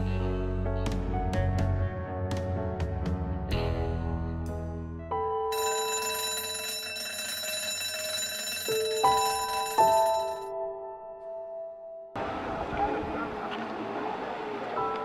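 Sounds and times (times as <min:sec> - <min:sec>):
background music: 0:00.0 - 0:12.2
electric school bell ringing: 0:05.5 - 0:10.5.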